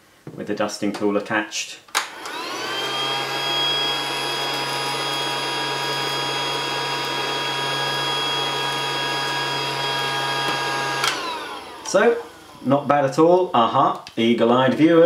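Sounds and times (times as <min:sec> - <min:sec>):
toy vacuum cleaner motor whine: 0:02.1 - 0:12.7.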